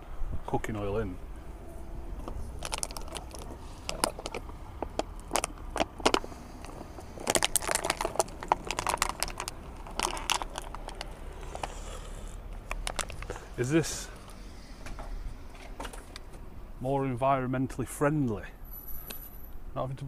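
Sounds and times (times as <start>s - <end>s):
oil glugging: 2.2s - 11.9s
plastic bottle crinkling: 2.2s - 12.0s, 12.6s - 13.5s.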